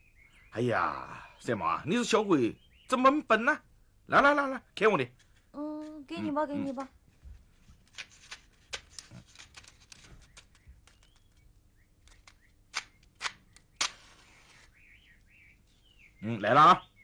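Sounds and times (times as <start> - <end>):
matches striking matchbox: 12.0 - 14.8.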